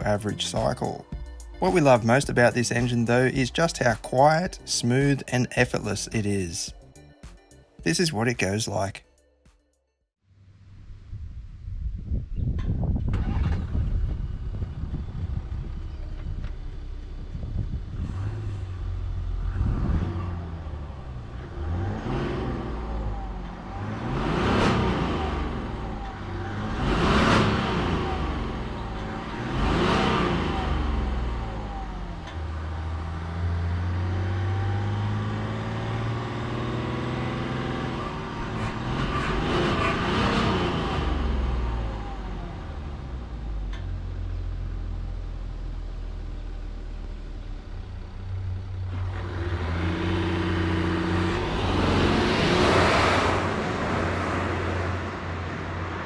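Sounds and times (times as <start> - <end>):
diesel engine accelerating: 0.0 - 9.0, 10.5 - 56.0.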